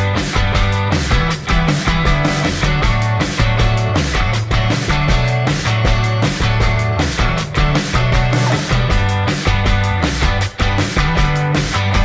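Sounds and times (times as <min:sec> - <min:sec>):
rock music: 0:00.0 - 0:12.0.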